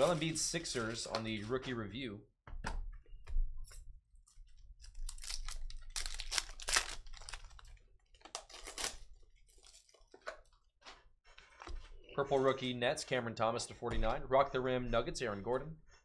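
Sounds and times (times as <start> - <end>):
wrapper crinkling and tearing: 0.0 - 1.4, 4.8 - 10.2.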